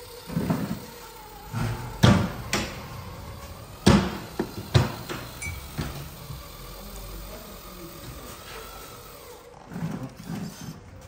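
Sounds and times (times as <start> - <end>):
sharp knocks: 3.8 - 6.0.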